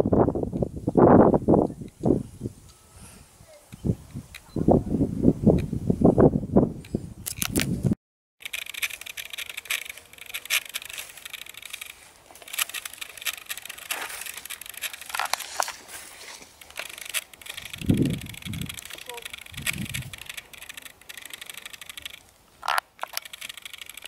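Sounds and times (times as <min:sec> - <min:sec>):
crackling rustling noise with clicks: 0:08.4 - 0:24.0
person's voice: 0:18.9 - 0:19.4.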